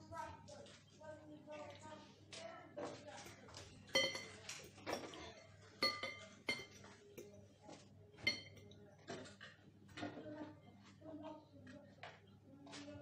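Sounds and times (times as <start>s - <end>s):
fork clinking in ceramic bowl: 3.9s - 7.4s, 8.2s - 8.8s.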